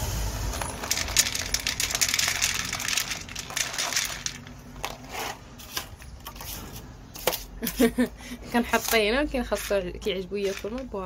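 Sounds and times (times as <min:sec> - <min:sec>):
kibble pellets rattling onto plate: 0:00.4 - 0:04.9.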